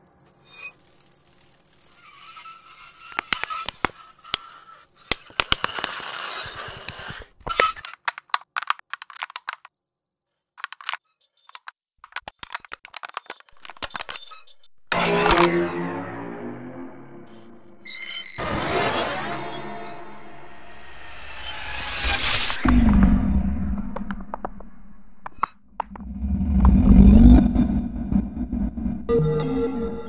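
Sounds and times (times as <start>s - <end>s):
crackling hissing texture: 0.6s - 9.7s
dry clicks: 6.9s - 9.7s, 10.6s - 14.6s.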